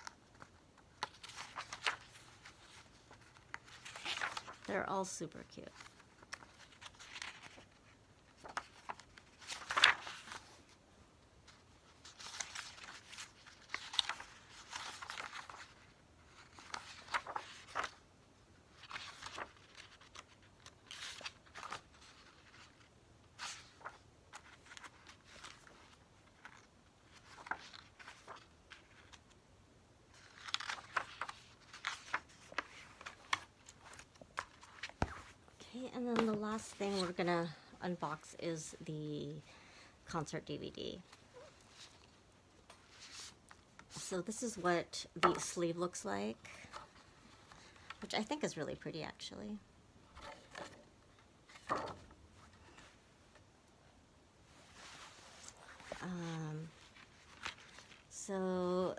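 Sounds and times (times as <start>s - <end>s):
glossy pages turning: 0.0s - 4.8s, 5.7s - 10.8s, 11.5s - 18.0s, 18.7s - 29.4s, 30.1s - 37.2s, 50.2s - 53.4s, 56.7s - 58.1s.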